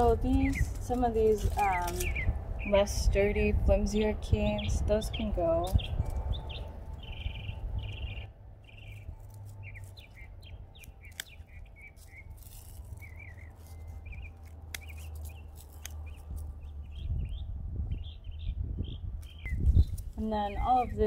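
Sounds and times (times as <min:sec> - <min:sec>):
hand pruners snipping: 0:00.0 - 0:02.2, 0:04.9 - 0:06.3, 0:10.8 - 0:16.7
low steady rumble: 0:00.0 - 0:21.0
songbirds chirping: 0:00.0 - 0:21.0.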